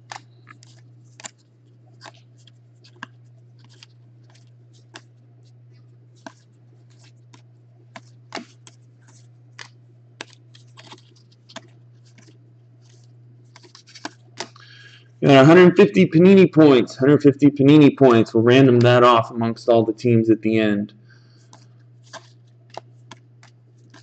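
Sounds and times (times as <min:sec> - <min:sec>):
cards clicking off a stack: 0:00.0 - 0:01.4, 0:02.9 - 0:05.1, 0:06.2 - 0:14.9, 0:21.4 - 0:24.0
steady low hum: 0:00.0 - 0:24.0.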